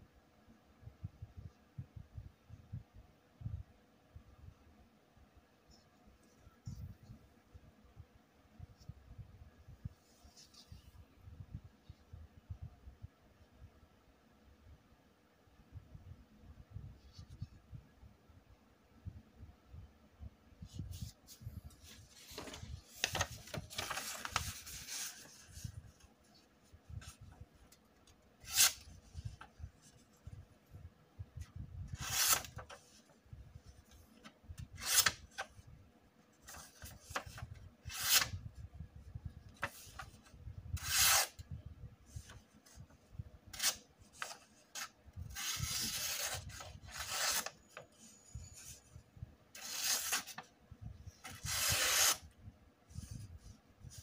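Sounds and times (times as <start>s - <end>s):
knife slicing paper: 32.0s - 32.6s, 44.8s - 47.5s, 49.6s - 50.4s, 51.3s - 52.2s.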